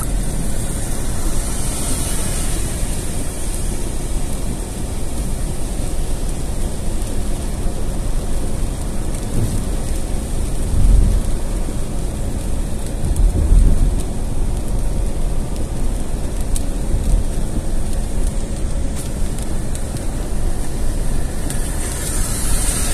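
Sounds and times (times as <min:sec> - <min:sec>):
low rumbles: 0:00.0 - 0:06.6
heavy rain: 0:00.0 - 0:22.9
tyres rumbling on wet road: 0:00.0 - 0:22.9.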